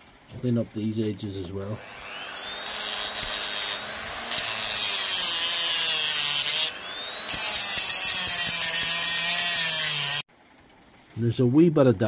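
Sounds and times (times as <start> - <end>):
power tool grinding: 1.7 - 10.3
motor whine: 1.8 - 8.8.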